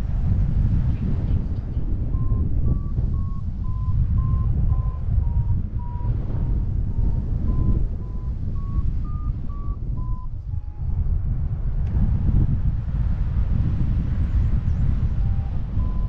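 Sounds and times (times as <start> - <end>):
wind on microphone: 0.0 - 16.0
variometer beeping: 1.8 - 11.0, 15.2 - 16.0.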